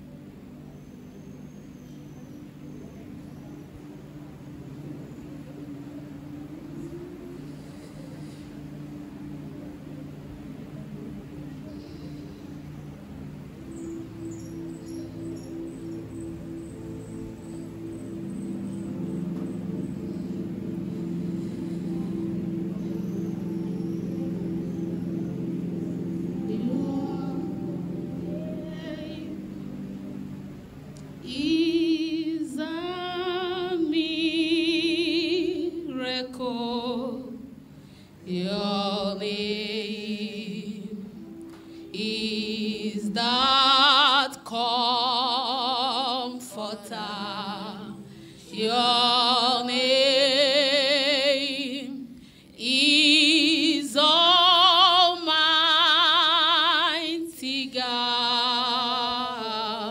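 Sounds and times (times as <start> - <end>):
soft sustained notes: 0.0 - 59.9
woman singing worship song: 18.1 - 30.0, 31.2 - 59.9.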